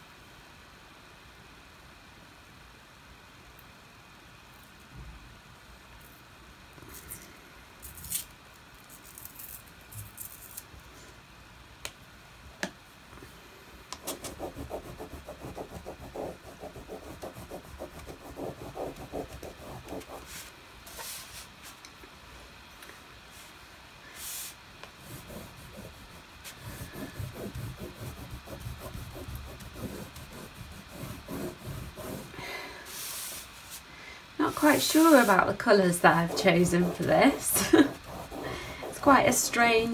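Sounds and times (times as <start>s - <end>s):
crayon scribbling on paper: 14.0s - 20.4s, 25.0s - 32.4s, 34.4s - 39.7s.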